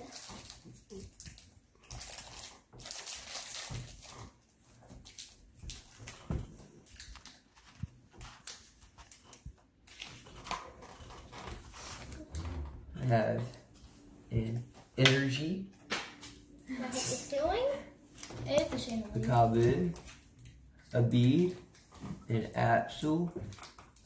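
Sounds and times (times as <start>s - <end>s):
foil wrapper crinkling: 0.0s - 12.1s.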